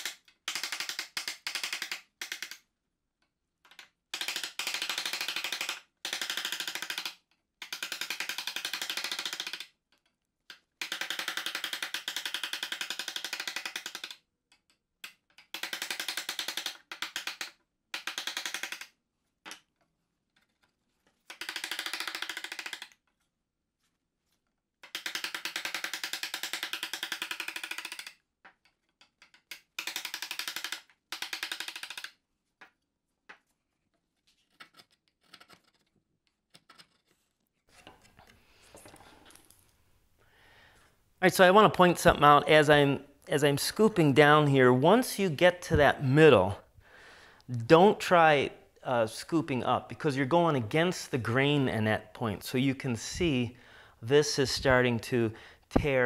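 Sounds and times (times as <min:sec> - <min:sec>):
chisel paring wood: 0:03.7 - 0:19.8.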